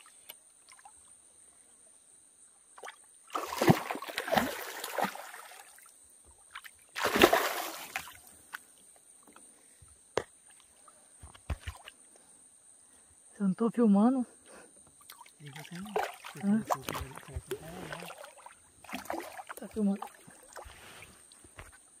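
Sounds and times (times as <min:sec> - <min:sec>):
paddle splashing in water: 0:02.8 - 0:05.8, 0:06.5 - 0:08.3, 0:15.1 - 0:21.8.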